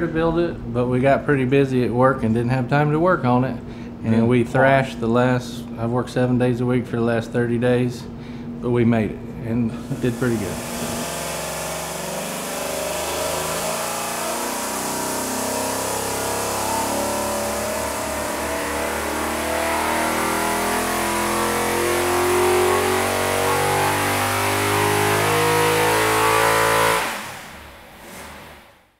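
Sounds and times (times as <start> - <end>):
engine running on dyno: 9.7 - 28.9.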